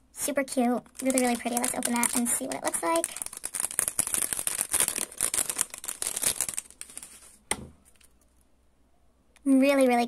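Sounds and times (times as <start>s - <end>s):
plastic bag crinkling: 0.8s - 8.2s.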